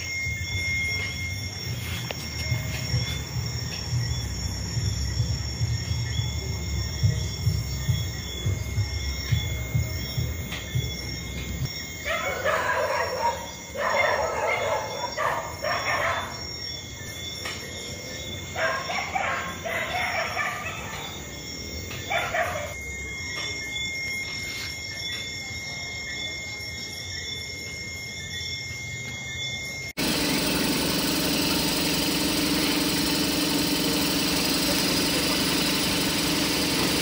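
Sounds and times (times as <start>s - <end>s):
faint high-pitched tone: 0.0s - 3.3s.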